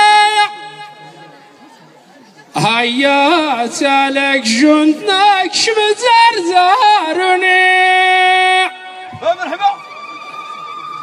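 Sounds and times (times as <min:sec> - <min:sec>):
man singing unaccompanied: 0:00.0 - 0:01.0, 0:02.6 - 0:09.2.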